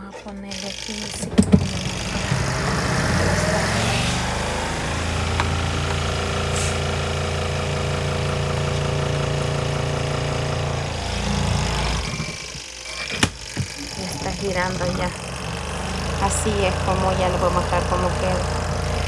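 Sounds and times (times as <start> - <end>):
washing machine motor spinning: 0.0 - 19.0.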